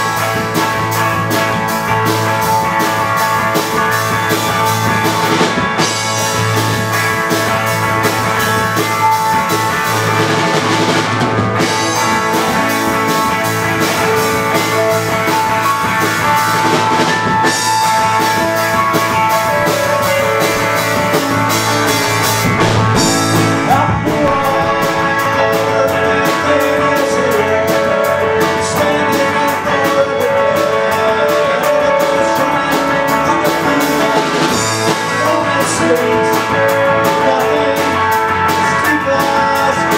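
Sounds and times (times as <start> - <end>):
rock band playing: 0.0 - 39.9
drum cymbal beat: 22.4 - 26.0
man singing: 22.6 - 39.9.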